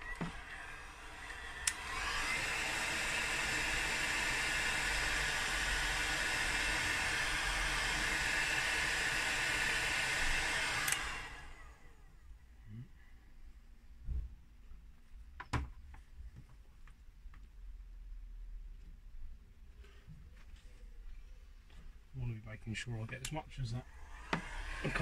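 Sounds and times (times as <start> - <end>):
hot air gun blowing: 0.0 - 11.4
fan spinning down: 0.0 - 12.0, 23.9 - 25.0.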